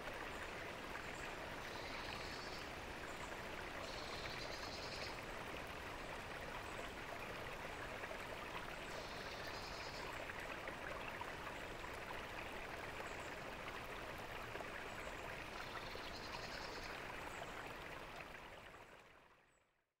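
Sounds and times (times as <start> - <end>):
fountain water splashing: 0.0 - 18.9.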